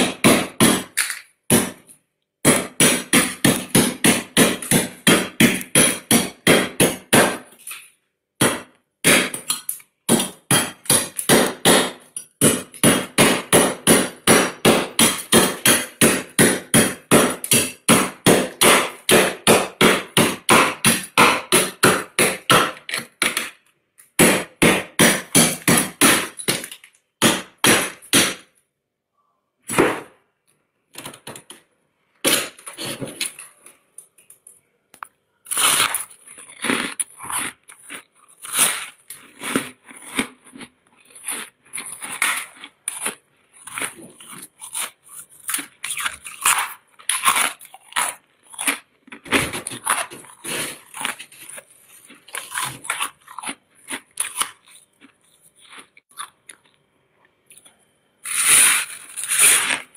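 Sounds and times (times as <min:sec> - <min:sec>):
metal spoon scraping frost: 0:35.4 - 0:48.9, 0:49.6 - 0:53.3, 0:58.2 - 0:59.9.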